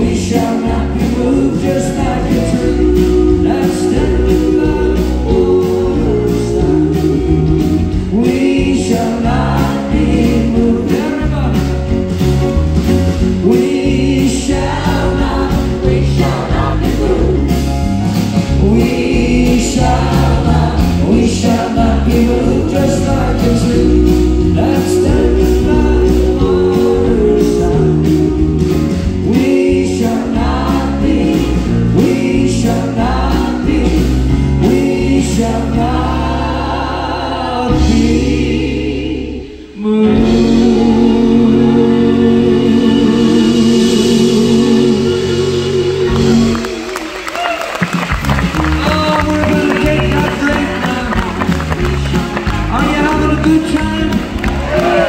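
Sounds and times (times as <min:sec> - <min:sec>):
voices singing together: 0:00.0 - 0:11.9, 0:13.2 - 0:47.3, 0:48.7 - 0:55.0
man singing lead: 0:00.0 - 0:12.1, 0:13.2 - 0:36.5, 0:39.7 - 0:46.9, 0:48.6 - 0:55.0
live band playing gospel song: 0:00.0 - 0:55.0
drum beat: 0:46.0 - 0:55.0.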